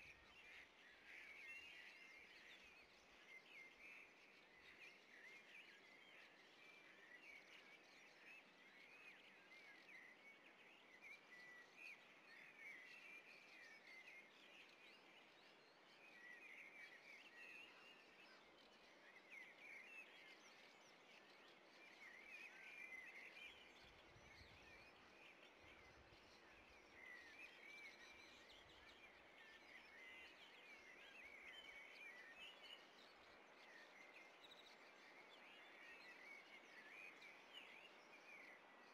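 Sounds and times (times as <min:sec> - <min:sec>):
small birds chirping: 0:00.0 - 0:38.9.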